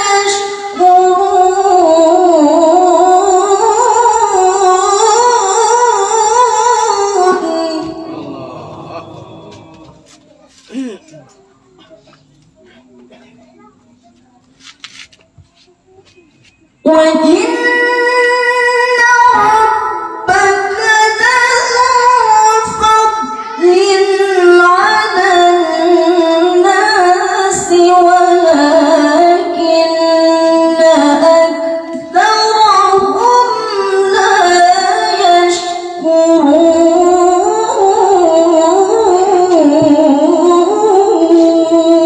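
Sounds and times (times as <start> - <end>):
woman chanting into a microphone: 0.0 - 11.1, 16.8 - 42.0.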